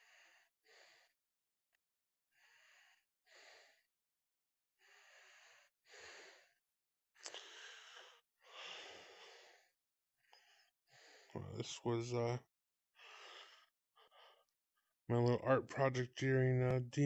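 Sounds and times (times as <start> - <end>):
soft breathing: 7.3 - 11.4, 13.0 - 14.5.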